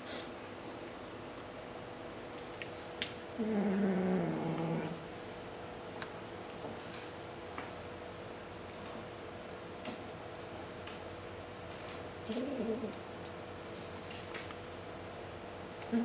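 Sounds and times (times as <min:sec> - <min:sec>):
kitten growling: 0:03.4 - 0:05.0, 0:12.2 - 0:13.0.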